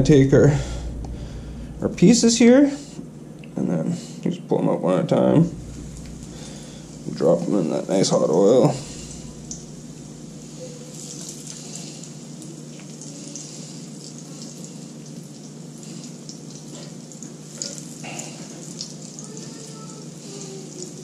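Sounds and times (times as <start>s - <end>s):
fish frying in hot oil: 5.6s - 21.0s.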